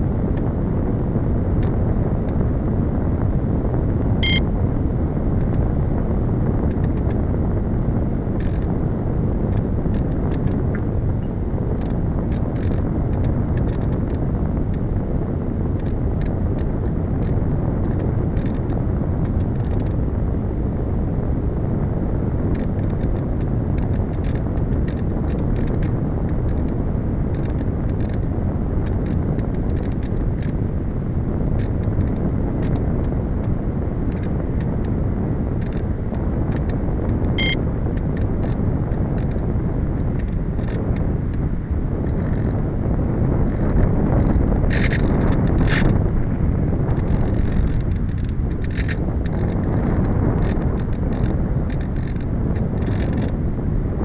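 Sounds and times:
wind rushing over microphone: 0.0s - 54.0s
light crackling ticks: 5.4s - 5.6s, 6.6s - 7.2s, 8.4s - 8.8s, 9.5s - 14.8s, 15.7s - 20.0s, 22.5s - 30.6s, 31.6s - 35.0s, 35.6s - 42.6s, 43.5s - 46.0s, 46.8s - 53.4s.

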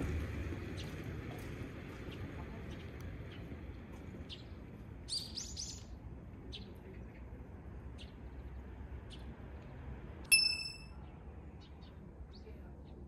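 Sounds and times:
low outdoor background: 0.0s - 13.0s
small birds chirping: 0.6s - 13.0s
bright metallic ding: 10.3s - 11.0s.

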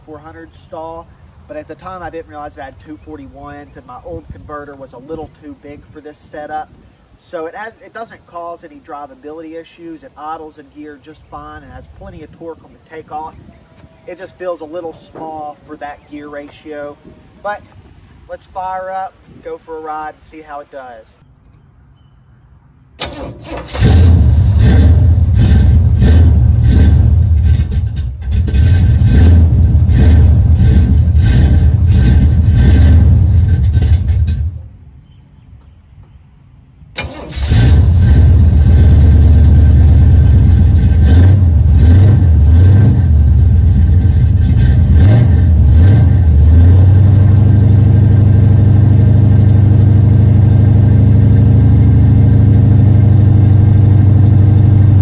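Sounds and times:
car engine running unevenly: 37.8s - 55.0s.

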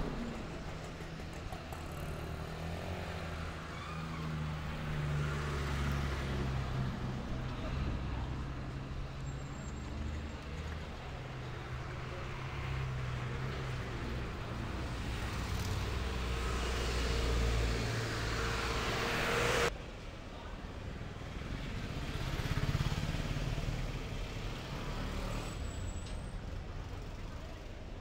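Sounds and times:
vehicle engines running: 0.0s - 19.7s
rush of road noise: 0.0s - 28.0s
traffic rumble: 0.0s - 28.0s.

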